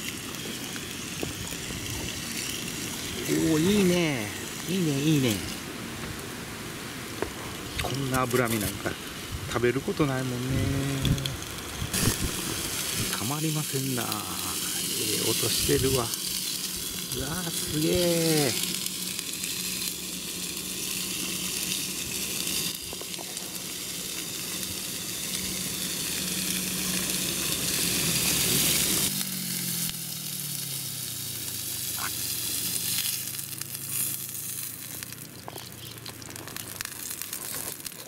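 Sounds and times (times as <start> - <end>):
beef sizzling on a grill pan: 0.0 - 38.0
low hum: 10.3 - 30.6.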